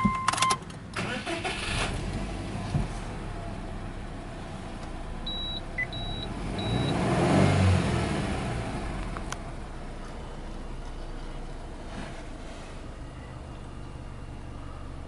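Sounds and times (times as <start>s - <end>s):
dashboard warning beeps: 0.0s - 0.6s, 5.3s - 7.0s
car engine fast idle: 1.0s - 2.0s.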